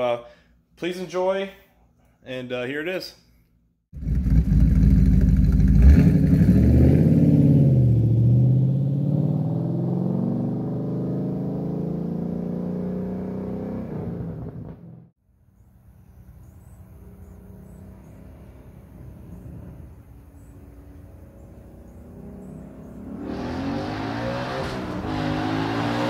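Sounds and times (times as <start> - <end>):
car engine at full throttle passing: 4.0 - 15.1, 17.0 - 26.0.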